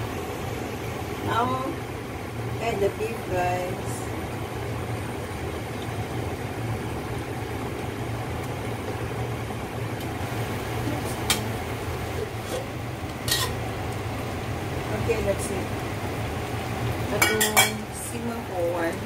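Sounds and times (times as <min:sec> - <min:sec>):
steady low hum: 0:00.0 - 0:19.0
metal spoon scraping in a wok: 0:12.2 - 0:13.6.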